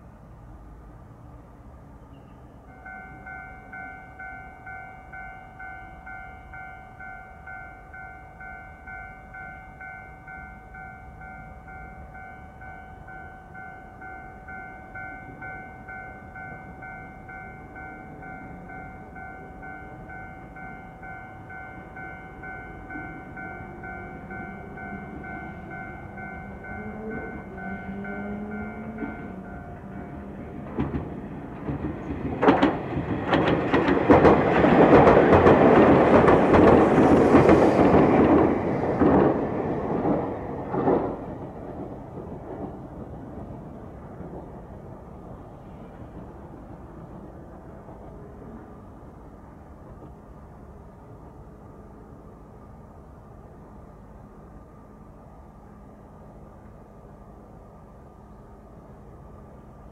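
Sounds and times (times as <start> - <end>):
electric train approaching: 0.0 - 59.9
level crossing bell ringing: 2.8 - 30.2.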